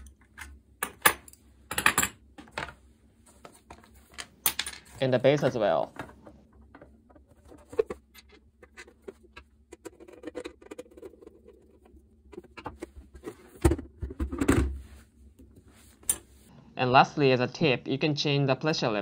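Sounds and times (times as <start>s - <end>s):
plastic base knocking and scraping: 5.5s - 14.8s.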